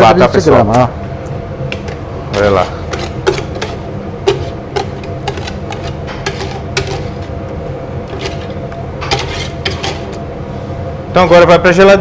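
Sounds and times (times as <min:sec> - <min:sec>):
steady low hum: 0:00.0 - 0:12.0
metal utensil knocking on pot: 0:02.9 - 0:07.2.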